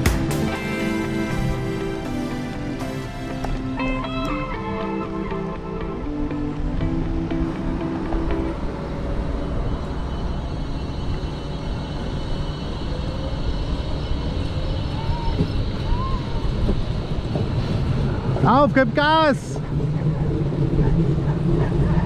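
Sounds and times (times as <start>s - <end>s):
background music: 0.0s - 11.5s
wind and road noise from bicycle: 0.0s - 22.0s.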